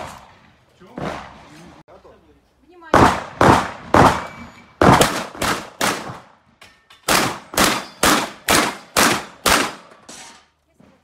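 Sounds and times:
rapid shotgun shots: 2.9s - 6.3s, 7.1s - 9.9s.

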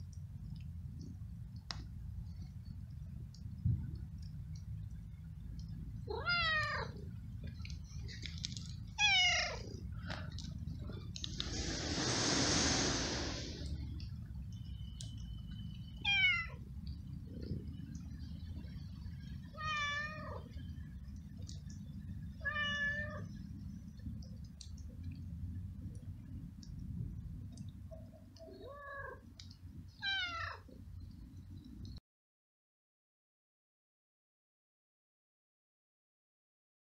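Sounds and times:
steady low rumble: 0.0s - 15.8s, 16.6s - 28.4s
cat meowing: 22.4s - 23.3s, 28.5s - 29.2s, 30.0s - 30.7s.

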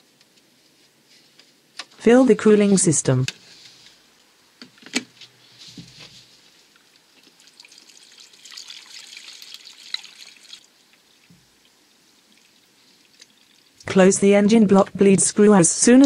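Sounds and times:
liquid trickling into funnel: 7.2s - 13.9s.

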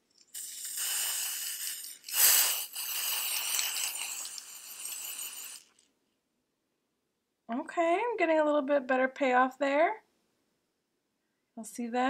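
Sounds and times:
aerosol spray hissing: 0.3s - 5.7s.

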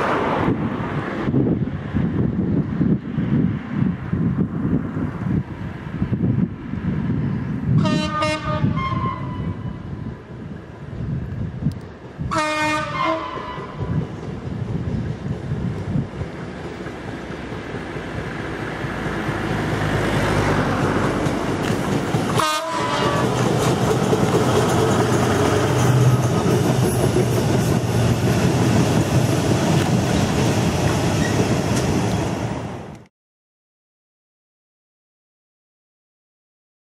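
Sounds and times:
diesel locomotive passing: 0.0s - 33.1s
wagons clattering over rail joints: 20.7s - 32.0s.

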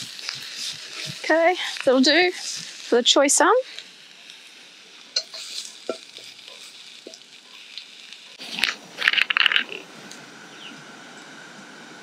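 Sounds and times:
faint sizzling in pan: 0.0s - 12.0s
utensil clinking against pan: 5.2s - 6.0s.

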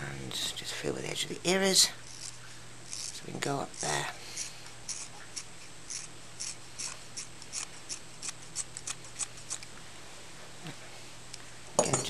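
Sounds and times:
scissors snipping hair: 3.8s - 9.7s.

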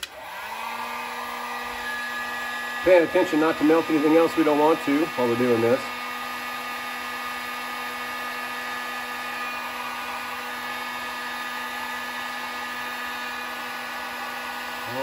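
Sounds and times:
heat gun blowing: 0.0s - 15.0s.

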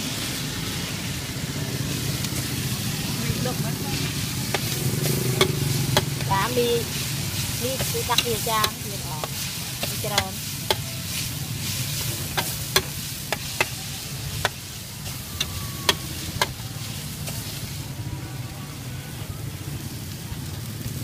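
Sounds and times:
food sizzling: 0.0s - 21.0s
spatula scraping and clacking on wok: 3.9s - 17.7s.

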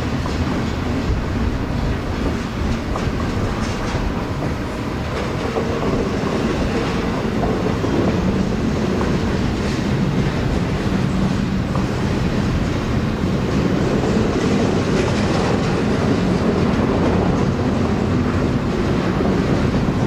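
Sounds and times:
train wheels rolling on rail: 0.0s - 20.0s
wheels clicking over rail joints: 0.0s - 20.0s.

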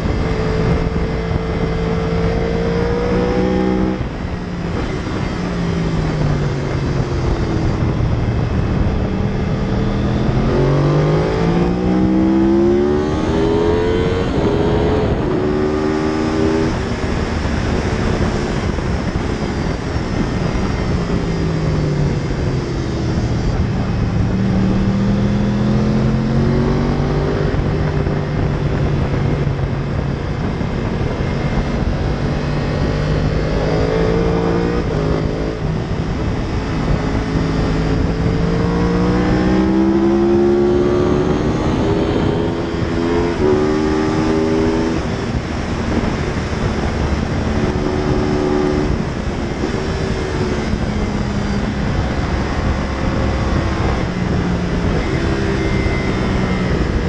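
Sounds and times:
motorcycle engine shifting gears: 0.0s - 57.0s
wind and road noise: 0.0s - 57.0s.

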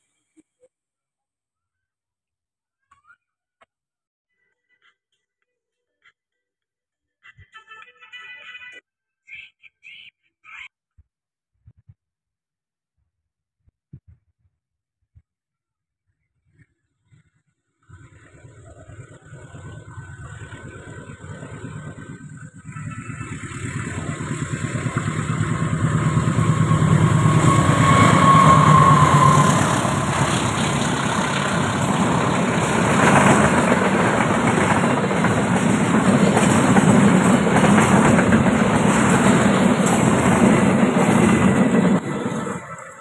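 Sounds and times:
diesel locomotive passing: 17.9s - 43.0s
steady whine: 18.2s - 40.1s
train wheels clattering on rails: 19.3s - 43.0s.

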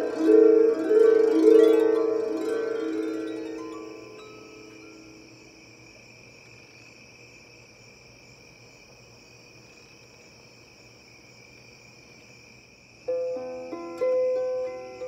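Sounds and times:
harp notes: 0.0s - 5.2s, 13.1s - 15.0s
crickets chirring: 0.0s - 15.0s.

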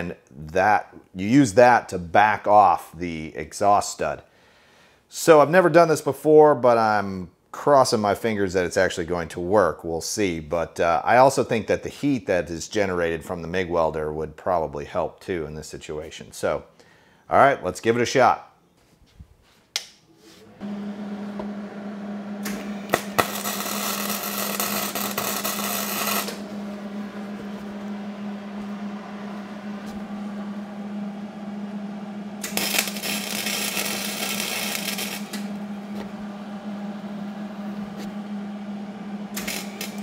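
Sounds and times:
welder humming: 20.4s - 40.0s
welding arc crackle and hiss: 22.4s - 26.4s, 32.4s - 35.6s, 39.3s - 40.0s.

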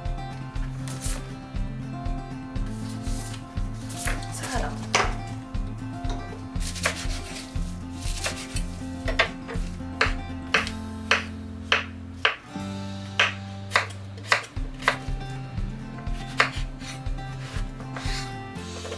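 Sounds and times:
soft background music: 0.0s - 18.9s
knife chopping on wooden board: 4.0s - 5.3s, 6.6s - 7.4s, 8.0s - 12.4s, 13.2s - 15.1s, 16.0s - 18.2s
paper rustling: 6.6s - 8.8s.

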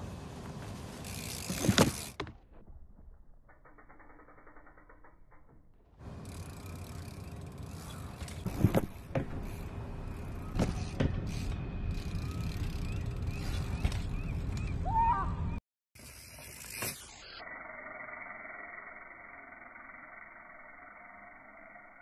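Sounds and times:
bike tyres rolling on metal: 0.0s - 14.6s.

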